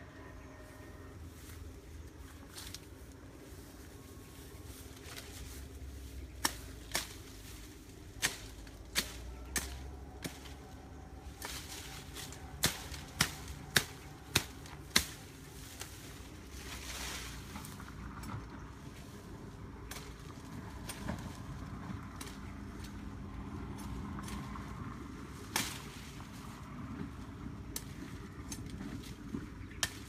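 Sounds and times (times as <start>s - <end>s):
woody stems snapping: 6.2s - 18.7s, 19.6s - 30.0s.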